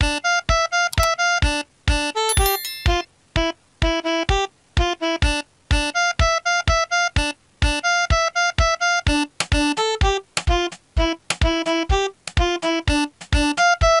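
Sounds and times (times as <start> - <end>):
bouncy music with clipped notes: 0.9 - 1.2, 2.3 - 3.0, 7.2 - 14.0.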